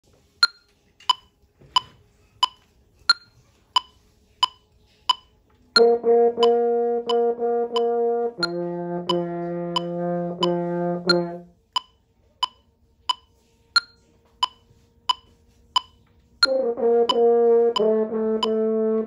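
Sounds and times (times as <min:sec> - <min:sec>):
metronome clicking: 0:00.4 - 0:19.0
french horn holding a note: 0:05.8 - 0:11.5, 0:16.5 - 0:19.0.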